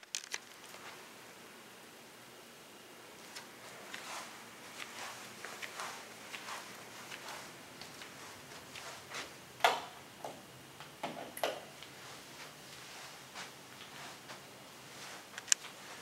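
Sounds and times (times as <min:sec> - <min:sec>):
sharp clicks and soft taps: 0:15.4 - 0:15.7.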